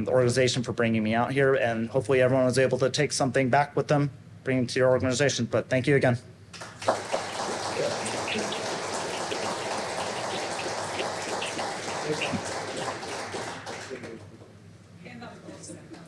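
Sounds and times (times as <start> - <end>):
audience applauding: 6.6 - 14.3.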